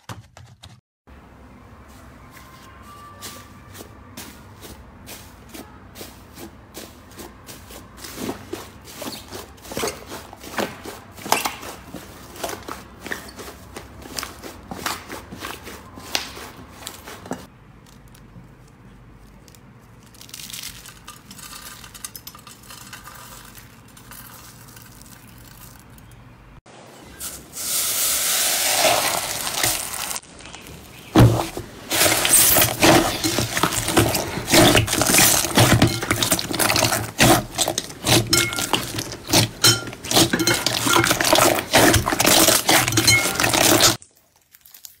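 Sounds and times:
foam slime crackling: 0:27.6 - 0:45.0
dry flakes crumbling: 0:28.5 - 0:45.0.

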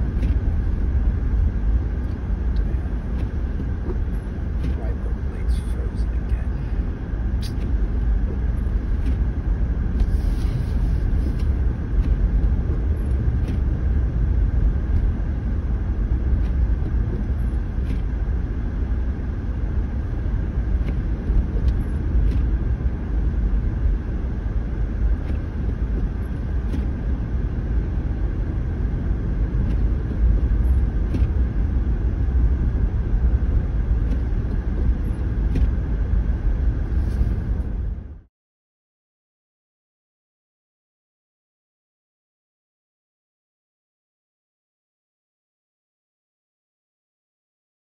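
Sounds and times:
tyre and road rumble: 0:00.0 - 0:38.2.

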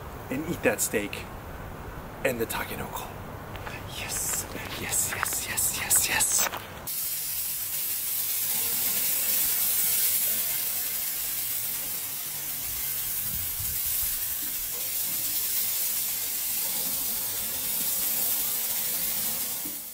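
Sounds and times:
steak sizzling on a grill: 0:06.9 - 0:19.9.

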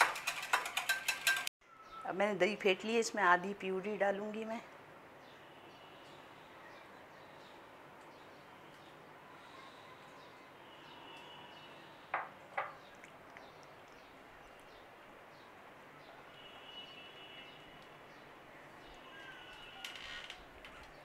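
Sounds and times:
glass knocking on marble counter: 0:12.2 - 0:12.8.

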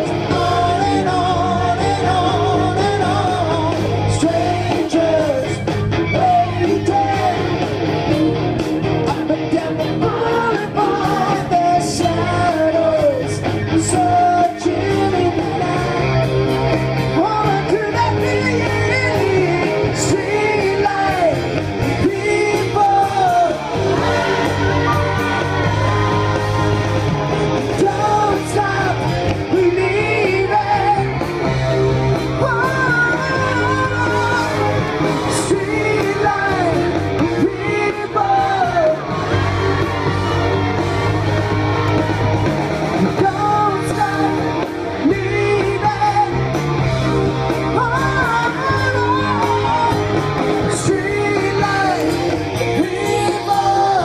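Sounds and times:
crowd shouting: 0:00.0 - 0:54.0
live rock band: 0:00.0 - 0:54.0
vocalist singing: 0:00.0 - 0:54.0.

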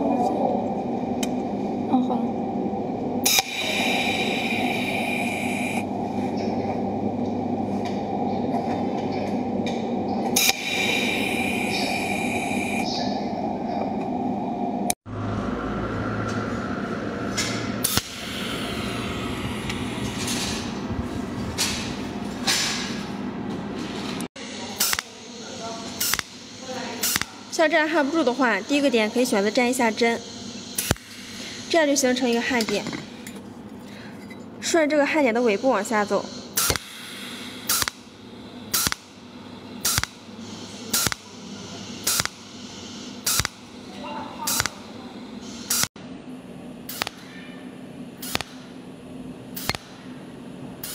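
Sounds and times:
welding machine humming: 0:01.2 - 0:08.0, 0:09.0 - 0:12.8, 0:17.3 - 0:22.3, 0:24.6 - 0:32.7, 0:36.6 - 0:39.1, 0:39.8 - 0:41.4, 0:42.0 - 0:45.9, 0:46.8 - 0:47.3, 0:48.2 - 0:48.8, 0:49.5 - 0:50.1
sharp weld snaps: 0:24.8 - 0:25.1, 0:26.0 - 0:26.4, 0:27.0 - 0:27.3, 0:30.8 - 0:31.2, 0:36.6 - 0:37.0, 0:37.7 - 0:38.0, 0:38.7 - 0:39.1, 0:39.8 - 0:40.2, 0:40.9 - 0:41.3, 0:42.1 - 0:42.4, 0:43.2 - 0:43.6, 0:44.5 - 0:44.8, 0:46.9 - 0:47.3, 0:48.2 - 0:48.7, 0:49.6 - 0:50.0.

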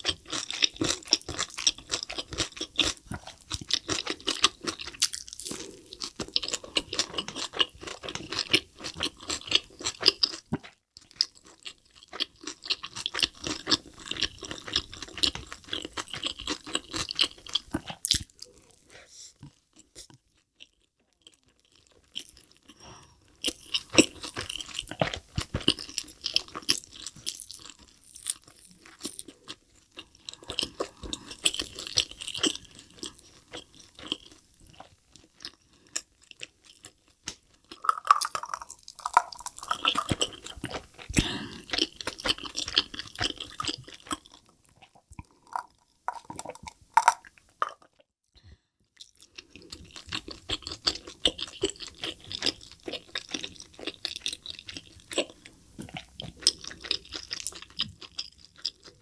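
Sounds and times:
wet crackly chewing: 0:19.4 - 0:48.0, 0:49.0 - 0:59.0.

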